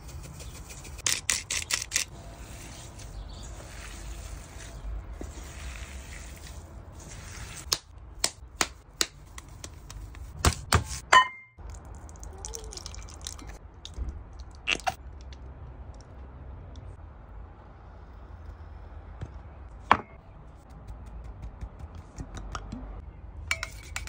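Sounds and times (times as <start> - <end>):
sharp knocks and clicks: 19.2 - 22.9.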